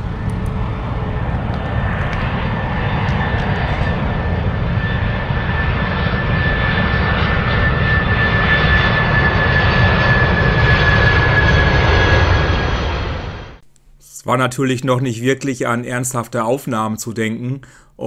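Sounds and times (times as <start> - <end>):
jet engines roaring: 0.0 - 13.6.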